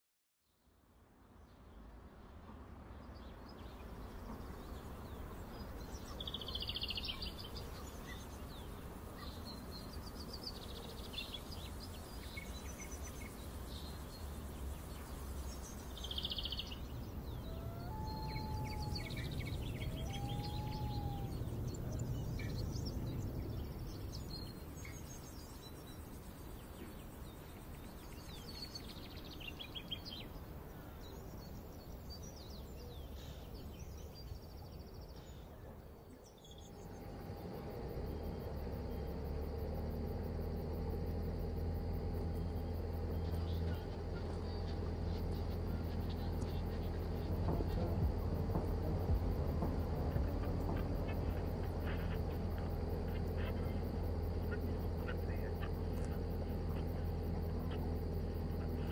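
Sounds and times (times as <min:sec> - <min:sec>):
small birds chirping: 0:02.5 - 0:58.9
low rumble: 0:11.5 - 0:27.4, 0:36.5 - 0:58.9.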